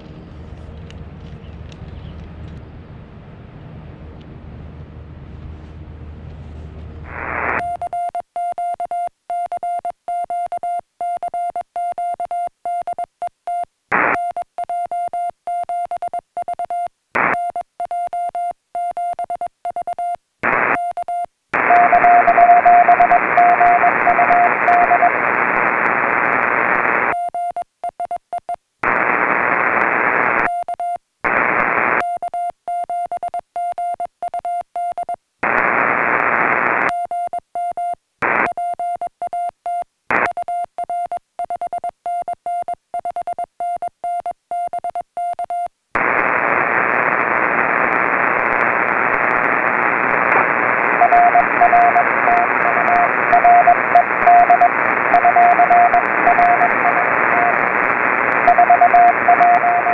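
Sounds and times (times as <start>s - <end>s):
radio band hiss: 7.0s - 7.6s, 13.9s - 14.2s, 17.2s - 17.4s, 20.4s - 20.8s, 21.6s - 27.1s, 28.8s - 30.5s, 31.2s - 32.0s, 35.4s - 36.9s, 38.2s - 38.5s, 46.0s - 59.9s
morse code tone: 7.2s - 25.3s, 50.6s - 59.9s
faint morse code: 7.2s - 48.8s, 50.0s - 59.9s.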